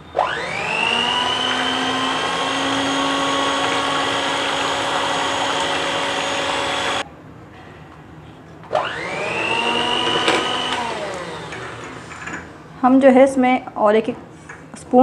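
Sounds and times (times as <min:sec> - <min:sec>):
electric hand mixer whining: 0:00.2 - 0:07.0, 0:08.7 - 0:12.1.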